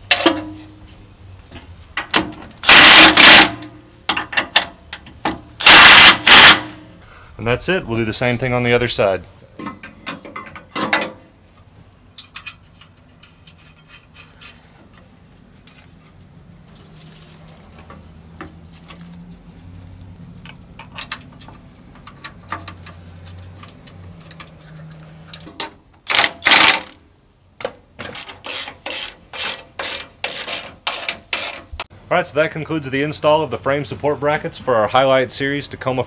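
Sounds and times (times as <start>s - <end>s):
ratchet wrench clicking: 5.6s - 6.6s, 28.1s - 31.6s
metal clinks and knocks: 9.6s - 11.3s, 12.1s - 16.2s, 20.4s - 26.8s.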